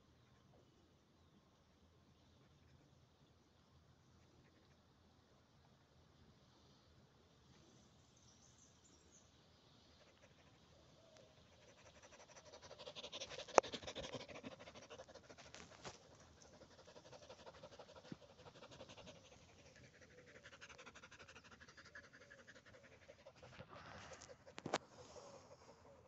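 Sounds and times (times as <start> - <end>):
dog panting: 11.4 - 26.0.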